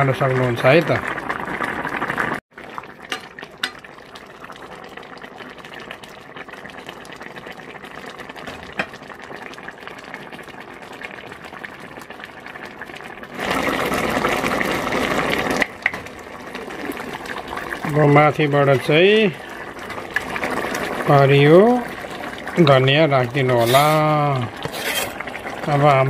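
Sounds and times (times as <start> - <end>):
stew bubbling in a pan: 0.0 - 26.0
ladle clinking: 23.4 - 25.4.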